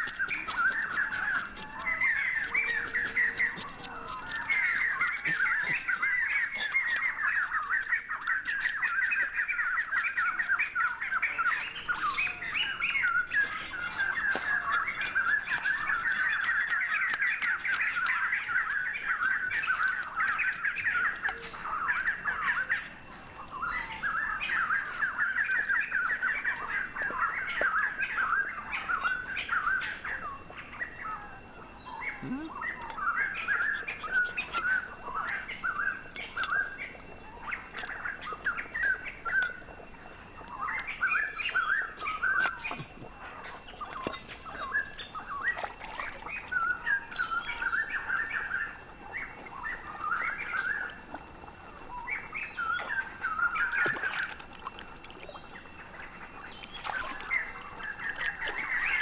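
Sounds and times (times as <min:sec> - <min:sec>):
cleaver scraping fish scales: 0:00.0 - 0:21.4, 0:32.7 - 0:36.8
birds chirping: 0:00.0 - 0:59.0.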